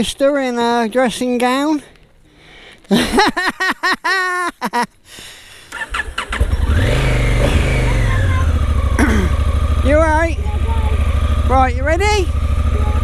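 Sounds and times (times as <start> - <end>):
motorcycle engine starting and idling: 5.7 - 13.0.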